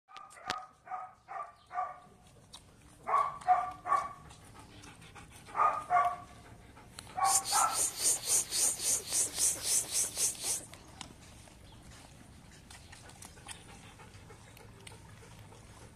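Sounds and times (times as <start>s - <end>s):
dog barking: 0.1s - 2.1s, 3.0s - 4.2s, 5.5s - 6.2s, 7.2s - 8.5s.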